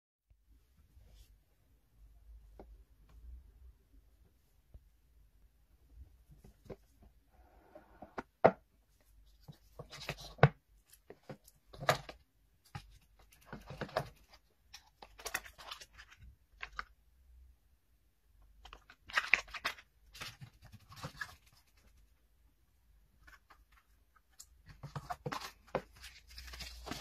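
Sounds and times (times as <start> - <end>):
cardboard packaging rustling: 24.7 - 27.0.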